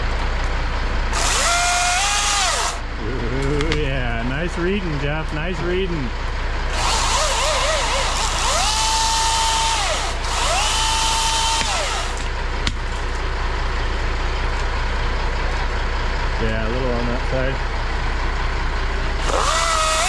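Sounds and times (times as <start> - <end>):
truck engine idling: 0.0 - 20.0
battery chainsaw whining: 1.1 - 3.9, 6.7 - 12.3, 19.2 - 20.0.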